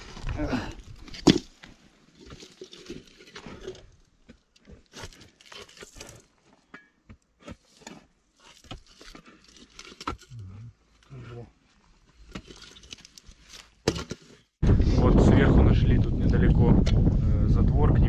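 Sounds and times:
tool scraping soil: 7.4s - 10.4s.

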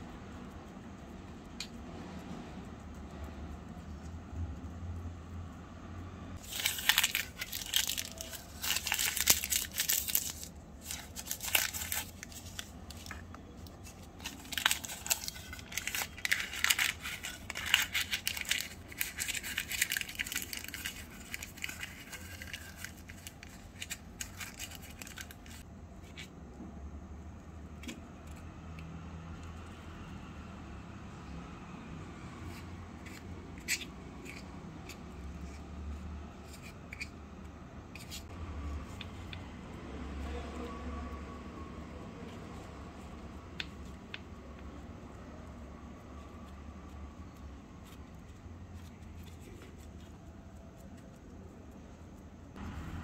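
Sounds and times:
paper crumpling and tearing: 6.4s - 25.6s.

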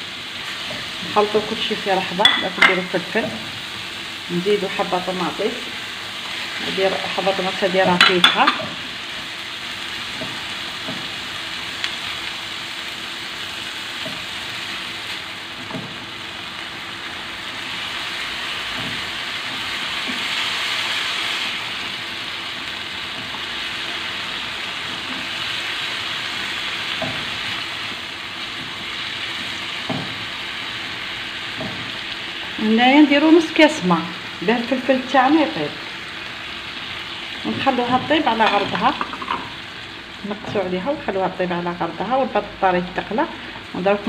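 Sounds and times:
vegetables sizzling in oil: 0.0s - 44.0s
utensil tapping pan: 7.9s - 8.8s, 37.5s - 39.5s.

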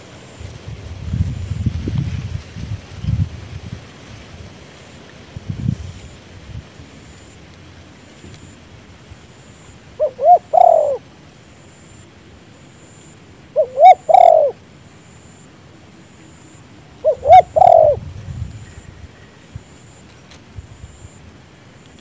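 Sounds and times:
dove cooing: 10.0s - 11.1s, 13.5s - 14.6s, 17.0s - 18.1s.

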